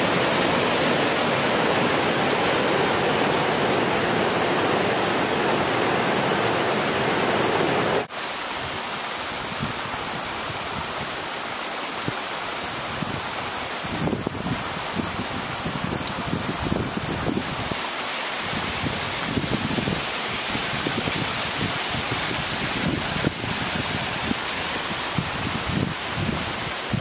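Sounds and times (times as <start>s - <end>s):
creek rushing over rocks: 0.0s - 27.0s
steady hiss: 17.4s - 27.0s.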